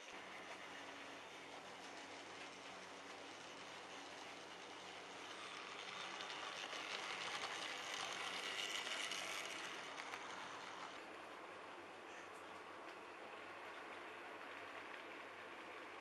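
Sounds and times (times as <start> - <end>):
model train wheels rattling: 0.0 - 11.1.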